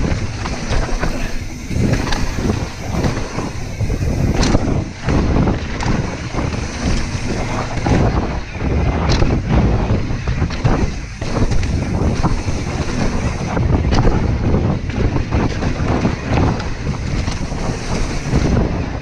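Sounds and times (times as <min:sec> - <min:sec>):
tyres rumbling over dirt: 0:00.0 - 0:18.9
bike knocking and rattling: 0:00.0 - 0:19.0
wind buffeting microphone: 0:00.0 - 0:19.0.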